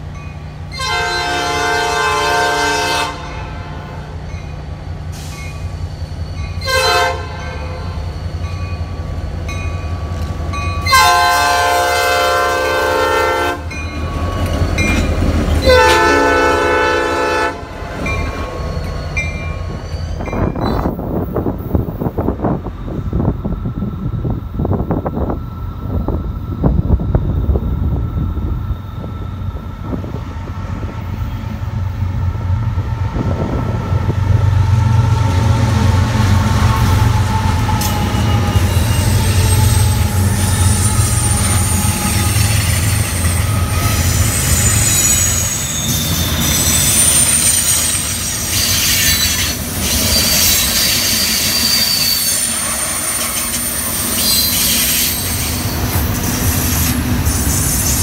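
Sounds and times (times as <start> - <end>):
diesel locomotive engine hum: 0.0 - 58.0
high-pitched wheel squeal: 36.6 - 58.0.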